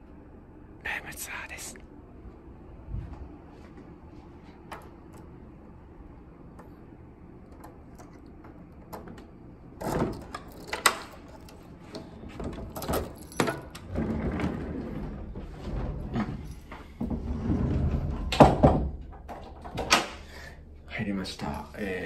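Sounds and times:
keys rattling: 10.1 - 11.6, 12.6 - 13.9.

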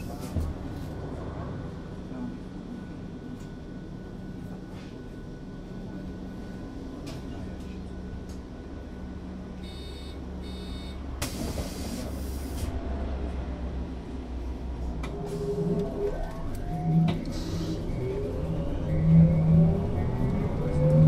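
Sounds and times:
trolleybus electrical hum: 0.0 - 21.0
short electronic beeps: 9.6 - 11.0.

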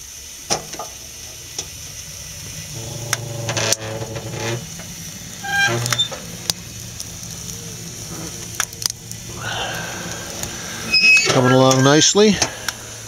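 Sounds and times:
low drone: 0.9 - 13.0.

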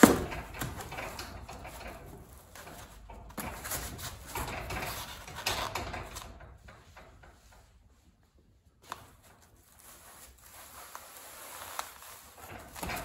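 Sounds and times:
foam board scraping metal door: 9.9 - 13.0.

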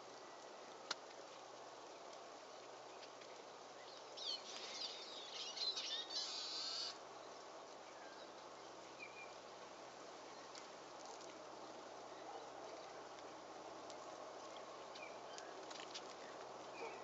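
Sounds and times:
faint background hiss: 0.0 - 17.0
songbird chirping and trilling: 3.8 - 7.0.

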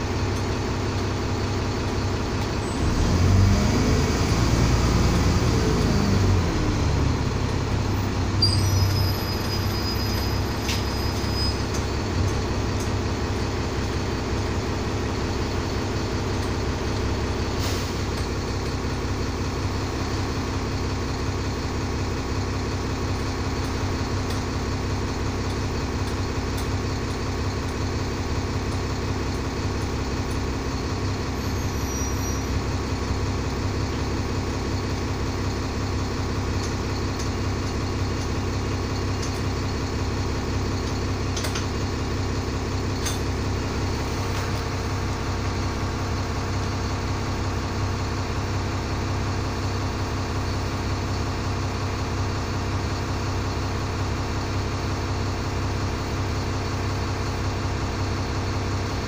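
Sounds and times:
bus diesel engine idling: 0.0 - 59.0
click: 25.5 - 26.7, 36.6 - 37.3, 40.8 - 41.7, 43.0 - 43.3
faint high whistle: 31.5 - 32.6.

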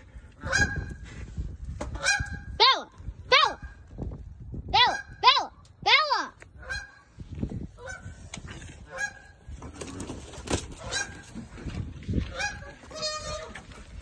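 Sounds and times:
goose honking: 0.4 - 0.9, 7.8 - 8.2, 8.8 - 9.4, 10.8 - 11.4, 12.3 - 13.8.

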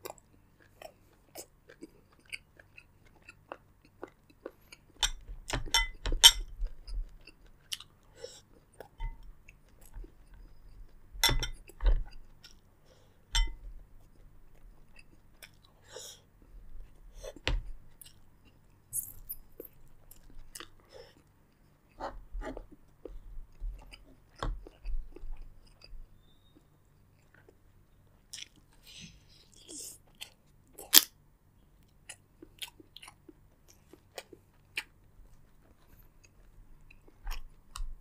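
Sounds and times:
wet chewing and crunching: 0.0 - 5.8.

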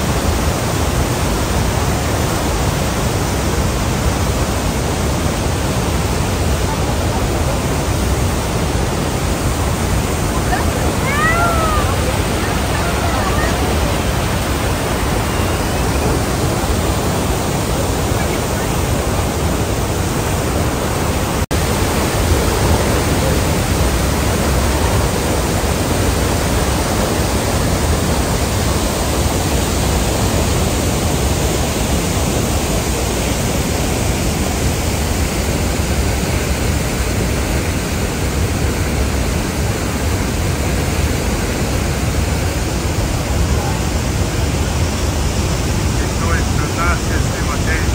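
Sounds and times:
waterfall rushing: 0.0 - 47.9.

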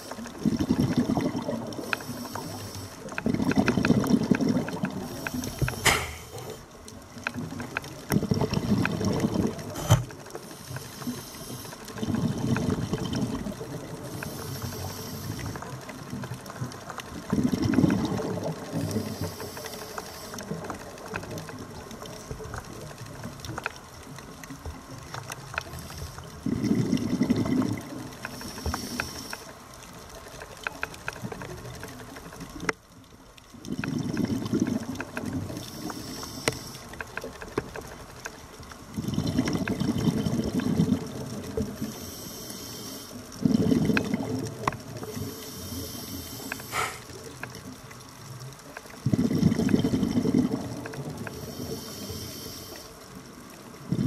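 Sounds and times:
faint clicking and crackling: 0.0 - 54.0
exhaled bubbles bursting: 0.4 - 1.9, 3.2 - 6.6, 8.1 - 10.1, 17.2 - 19.0, 26.3 - 28.1, 33.6 - 35.6, 38.9 - 41.8, 43.4 - 44.9, 49.0 - 51.3
hissing regulator inhalation: 1.8 - 3.1, 5.0 - 6.6, 14.1 - 15.6, 28.2 - 29.5, 35.6 - 36.8, 41.9 - 43.2, 45.1 - 47.2, 51.3 - 53.0.

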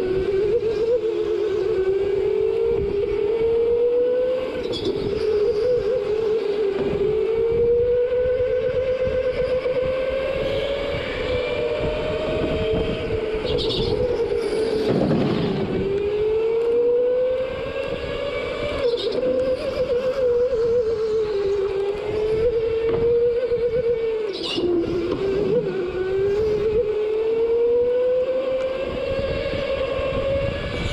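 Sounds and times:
go-kart engine running hard: 0.0 - 30.9.

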